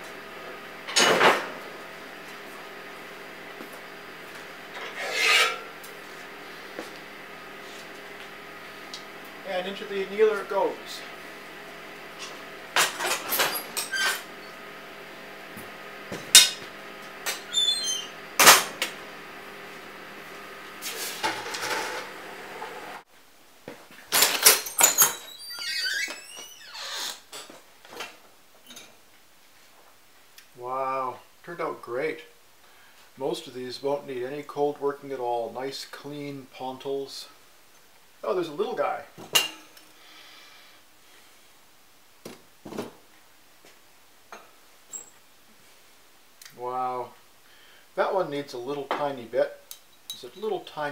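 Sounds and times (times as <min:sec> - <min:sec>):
workshop hum: 0:00.0 - 0:50.9.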